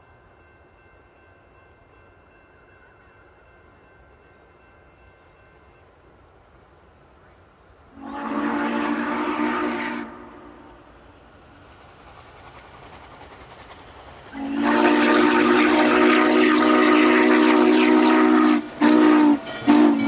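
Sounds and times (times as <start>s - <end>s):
train running noise: 0.0s - 20.0s
steam locomotive whistle blasts: 7.9s - 11.0s, 14.3s - 20.0s.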